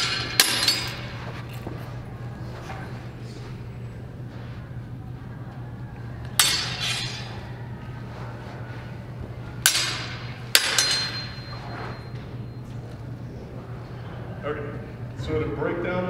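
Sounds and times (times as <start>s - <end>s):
swords clashing: 0.0s - 1.2s, 6.3s - 7.5s, 9.6s - 12.1s.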